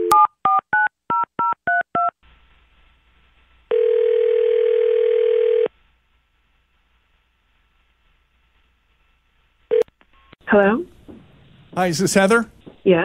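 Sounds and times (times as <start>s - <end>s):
faint line hiss: 2.2s - 13.0s
telephone ringback tone: 3.7s - 5.7s.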